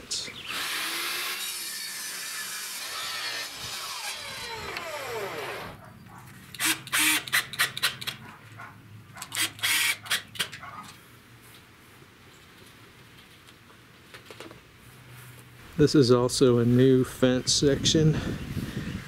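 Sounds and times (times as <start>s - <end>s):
cordless drill driving screws: 0.4s - 5.8s, 6.6s - 8.1s, 9.2s - 10.5s
table saw blade spinning down: 0.5s - 5.8s.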